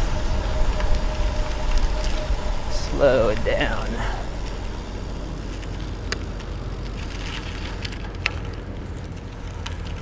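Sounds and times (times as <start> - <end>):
wind on microphone: 0.0 - 7.9
bicycle tyres rolling on asphalt: 0.0 - 10.0.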